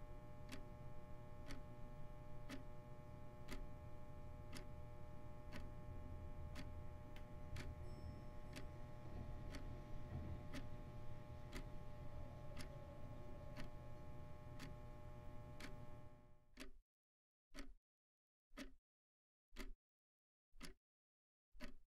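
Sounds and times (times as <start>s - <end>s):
steady hum with held tones: 0.0s - 16.4s
regular ticking: 0.4s - 0.7s, 1.4s - 1.7s, 2.4s - 2.7s, 3.5s - 16.0s, 16.6s - 16.8s, 17.6s - 17.8s, 18.6s - 18.8s, 19.6s - 19.8s, 21.6s - 21.8s.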